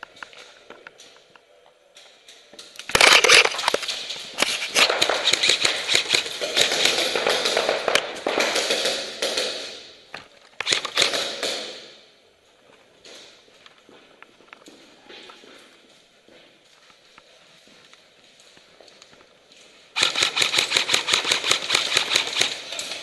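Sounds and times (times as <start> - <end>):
airsoft guns firing bursts: 4.5 - 9.9, 10.6 - 11.9, 20.0 - 23.0.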